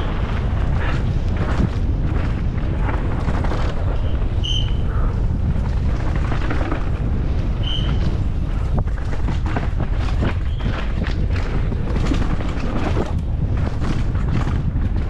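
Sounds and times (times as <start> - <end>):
bike rattling over roots: 0.0 - 15.0
tyres on loose dirt: 0.0 - 15.0
wind buffeting microphone: 0.0 - 15.0
short high squeaks: 4.0 - 4.8, 7.6 - 8.0.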